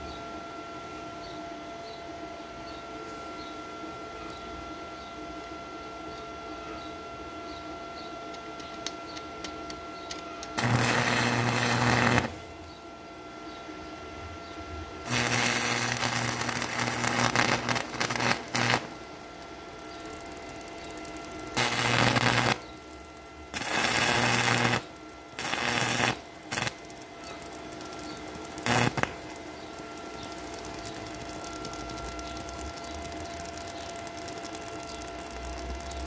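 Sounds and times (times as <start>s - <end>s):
steady hum: 0.0s - 36.0s
welding arc crackling: 10.1s - 12.8s, 14.9s - 36.0s.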